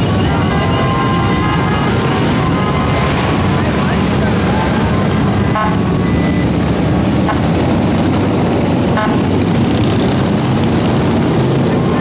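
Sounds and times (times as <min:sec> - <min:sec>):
horn toots: 0:00.0 - 0:06.5, 0:07.2 - 0:07.6, 0:08.9 - 0:09.4.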